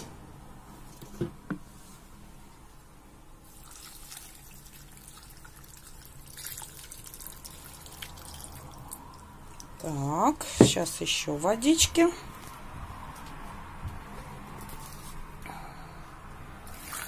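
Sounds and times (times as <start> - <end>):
water trickling into a metal pot: 3.5 - 9.8.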